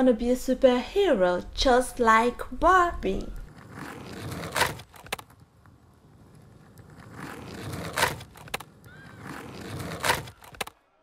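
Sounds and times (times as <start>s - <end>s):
toy skateboard wheels rolling: 3.1s - 10.8s
sharp clacks: 6.7s - 8.7s.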